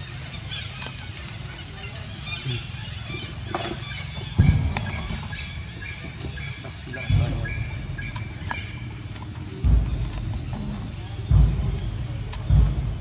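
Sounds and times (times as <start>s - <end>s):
low rumble: 4.2s - 13.0s
dull thump: 4.4s - 5.5s, 7.0s - 13.0s.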